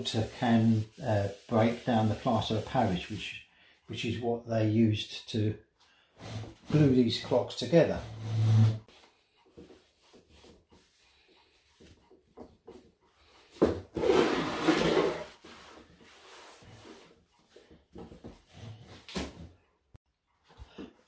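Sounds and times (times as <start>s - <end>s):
scouring pad scrubbing: 0.0s - 3.3s.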